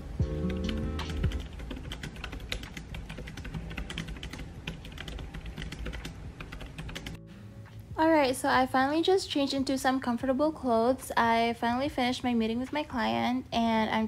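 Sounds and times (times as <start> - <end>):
keyboard typing clicks: 0.5 - 7.2.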